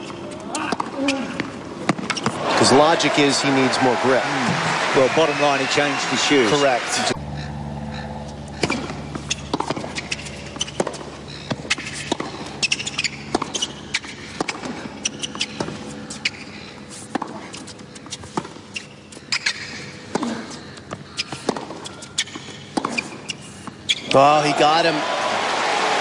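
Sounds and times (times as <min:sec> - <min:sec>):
tennis ball bouncing: 0:00.0 - 0:03.0, 0:08.3 - 0:24.2
tennis ball struck by racquets: 0:00.6 - 0:02.5, 0:08.5 - 0:24.1.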